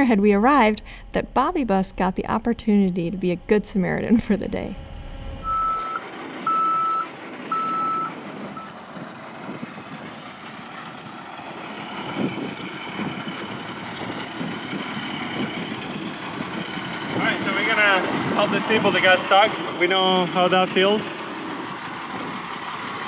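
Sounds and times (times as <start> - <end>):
vehicle noise: 0.0 - 23.0
reversing alarm beeps: 5.3 - 8.8.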